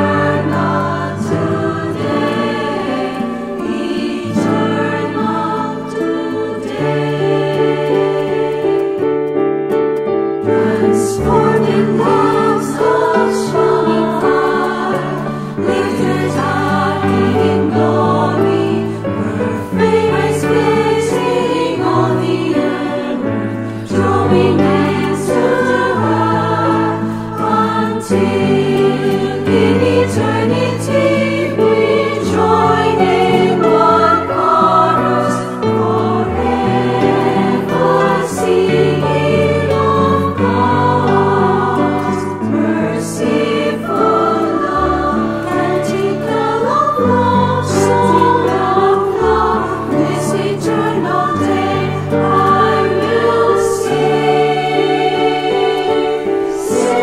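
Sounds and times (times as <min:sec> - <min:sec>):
women's choir singing a hymn: 0:00.0 - 0:09.3, 0:10.4 - 0:57.0
guitar accompaniment: 0:00.0 - 0:57.0.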